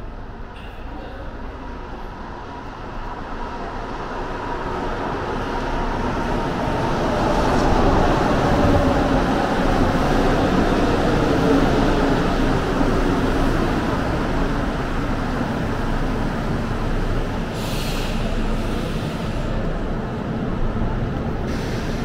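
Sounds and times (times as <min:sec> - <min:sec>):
train braking to a stop: 0:17.4 - 0:19.6, 0:21.5 - 0:22.0.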